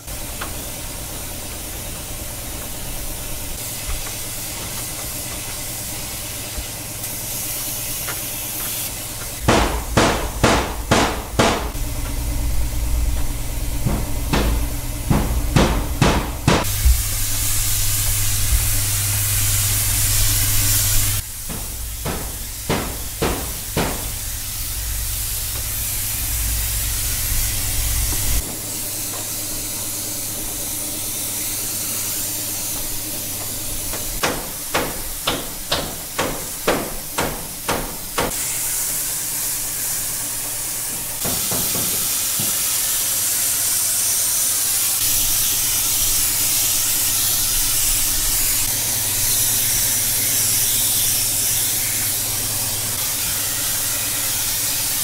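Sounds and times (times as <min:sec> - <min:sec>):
steady hiss: 0:00.0 - 0:12.0, 0:13.5 - 0:55.0
low hum: 0:09.5 - 0:34.2
hammer blows: 0:13.1 - 0:17.0, 0:21.3 - 0:24.3.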